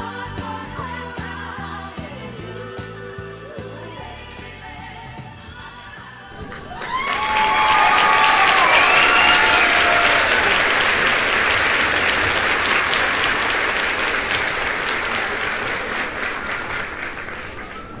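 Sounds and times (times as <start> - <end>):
crowd applause: 6.3 - 18.0.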